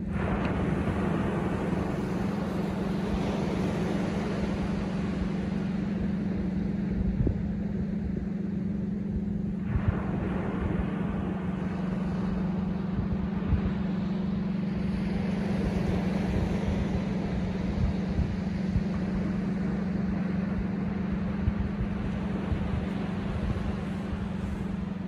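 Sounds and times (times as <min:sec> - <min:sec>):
ocean surf rumbling: 0:00.0 - 0:25.0
wave breaking and washing up: 0:00.0 - 0:25.0.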